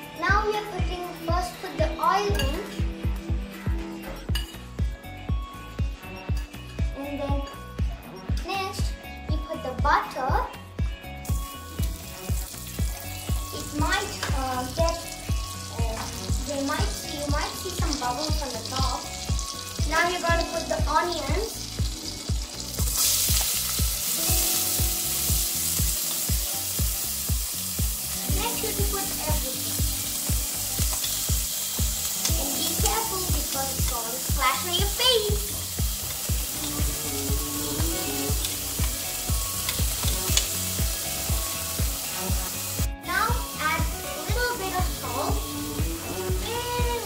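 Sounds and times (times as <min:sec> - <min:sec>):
background music with beat: 0:00.0 - 0:47.0
onions sizzling in butter: 0:11.2 - 0:47.0.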